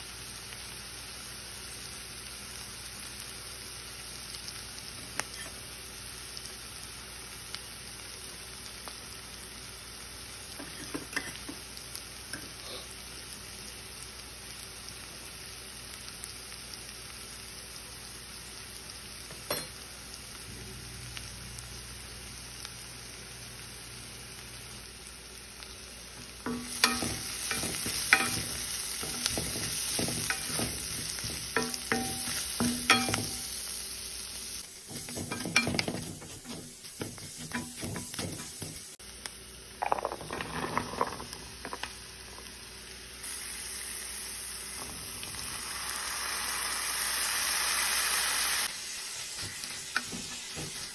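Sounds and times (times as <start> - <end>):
onions sizzling in a pan: 0.0 - 50.9
spatula scraping a pan: 26.5 - 33.5, 34.8 - 39.0, 39.8 - 41.9, 49.3 - 50.9.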